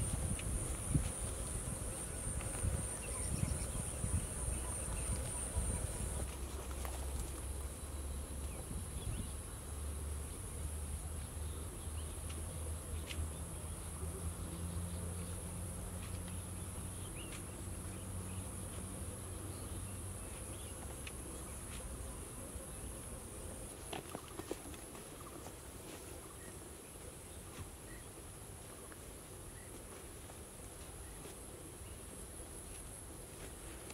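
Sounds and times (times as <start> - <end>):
insects buzzing: 0.0 - 6.3.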